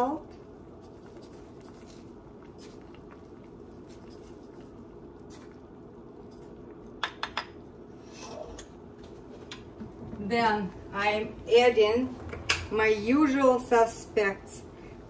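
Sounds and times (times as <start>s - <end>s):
soup bubbling in a pot: 0.0s - 10.2s.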